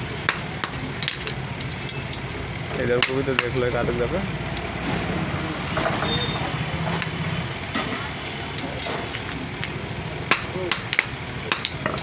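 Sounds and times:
hammer striking iron on anvil: 0.2s - 2.0s, 3.0s - 3.6s, 10.3s - 12.0s.

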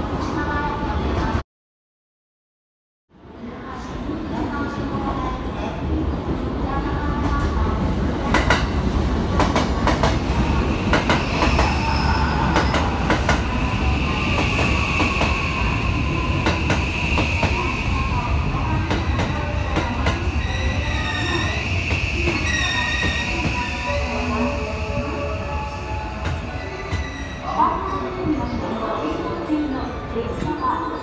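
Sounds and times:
falling whine of braking train: 10.4s - 28.5s
train brakes squealing: 10.5s - 18.3s, 19.8s - 28.9s.

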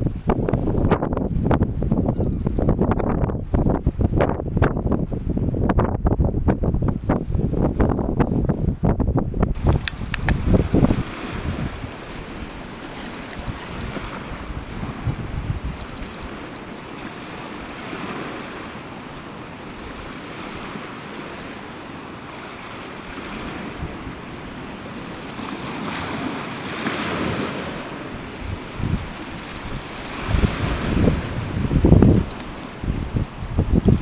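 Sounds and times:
wind rumbling on microphone: 0.0s - 34.0s
waves breaking on pebble shore: 9.6s - 34.0s.

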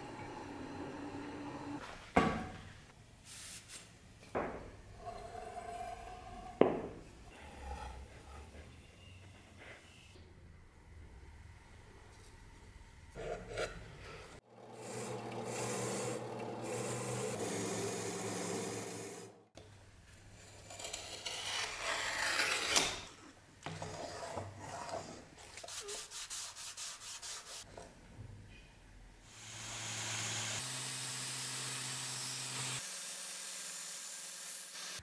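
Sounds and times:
drill press motor humming: 14.5s - 19.4s.

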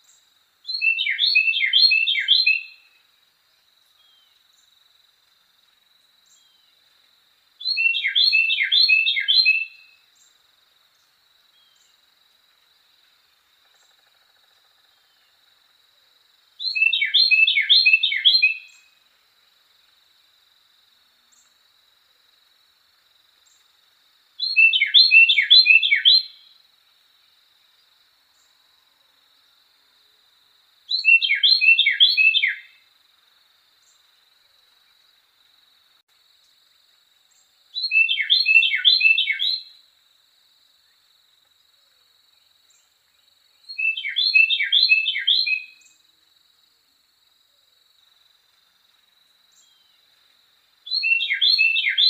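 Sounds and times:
wren singing: 0.0s - 2.8s, 7.6s - 10.4s, 16.6s - 18.9s, 24.4s - 26.5s, 30.9s - 32.8s, 37.3s - 39.7s, 43.6s - 46.0s, 50.8s - 52.0s.

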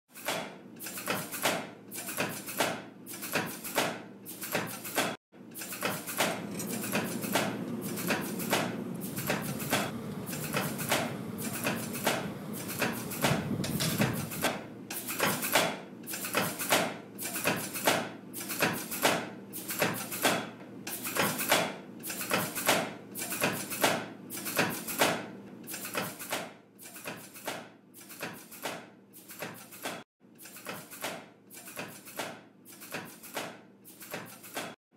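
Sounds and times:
low machine hum: 6.2s - 14.8s.

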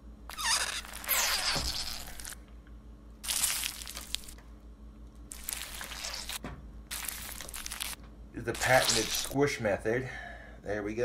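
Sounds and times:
tortilla chips crunching: 3.2s - 4.4s, 5.3s - 9.4s.

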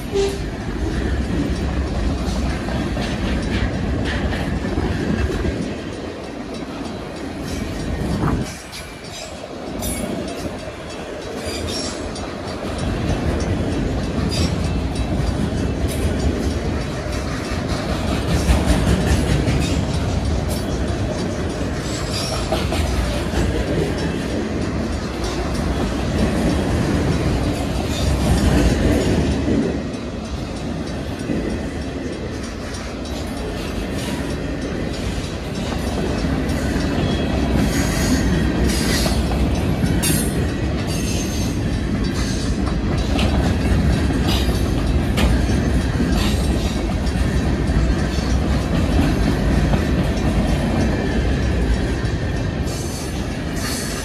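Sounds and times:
train wheels rumbling on rail: 0.0s - 54.0s
wheels clicking over rail joints: 0.0s - 54.0s.

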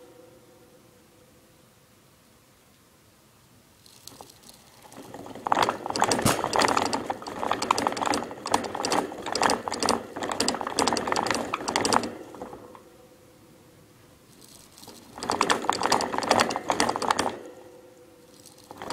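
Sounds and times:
plastic exercise wheel rattling: 3.9s - 12.7s, 14.4s - 17.4s, 18.3s - 18.9s.

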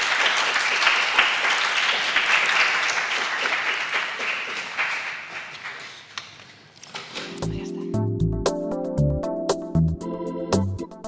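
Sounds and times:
audience applauding: 0.0s - 6.2s.

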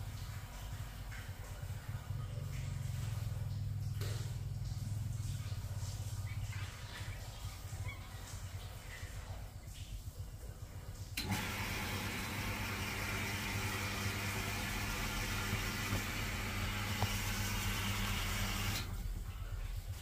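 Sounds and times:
low background hum: 0.0s - 20.0s
motor running: 11.2s - 19.0s.

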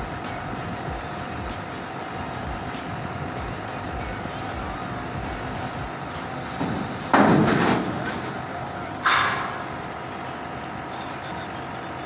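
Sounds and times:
heavy crane machinery running: 0.0s - 12.0s
loud sudden bangs: 6.6s - 8.4s.

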